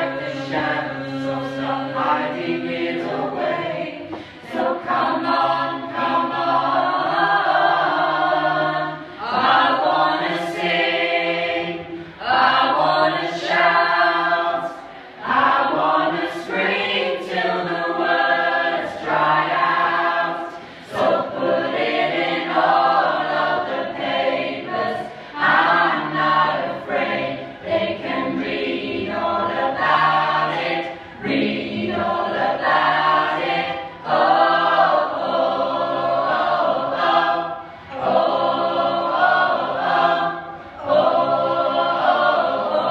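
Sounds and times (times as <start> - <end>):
choir singing unaccompanied: 0.0 - 42.9
singers breathing: 4.0 - 4.5, 14.8 - 15.2, 20.5 - 20.9, 37.6 - 37.9.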